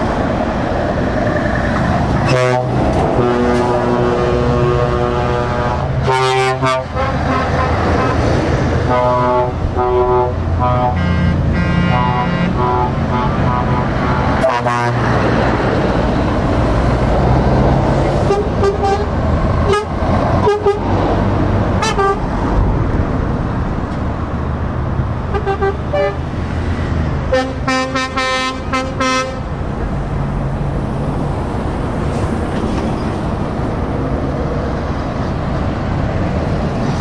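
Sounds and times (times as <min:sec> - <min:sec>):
heavy trucks passing: 0:00.0 - 0:37.0
truck air horns tooting: 0:02.2 - 0:15.2, 0:18.2 - 0:20.9, 0:21.8 - 0:22.3, 0:25.3 - 0:26.2, 0:27.3 - 0:29.5.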